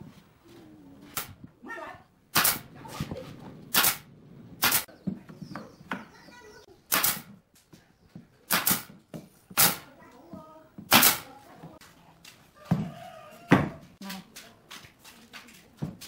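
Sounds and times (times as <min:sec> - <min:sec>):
pneumatic nail gun firing: 0:01.1 - 0:01.4, 0:02.3 - 0:02.7, 0:03.7 - 0:04.0, 0:04.6 - 0:04.9, 0:06.9 - 0:07.3, 0:08.5 - 0:09.9, 0:10.9 - 0:11.3.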